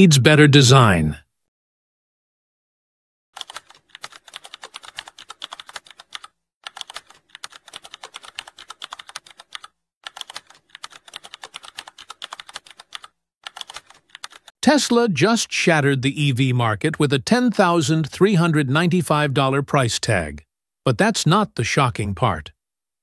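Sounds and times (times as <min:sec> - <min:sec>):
fast computer keyboard typing: 0:03.4 - 0:14.5.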